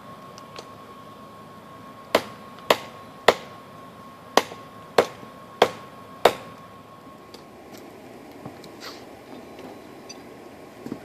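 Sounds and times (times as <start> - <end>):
thin steady whine: 0.0 - 11.0
hammer striking hot steel on anvil: 2.1 - 3.6, 4.4 - 6.6.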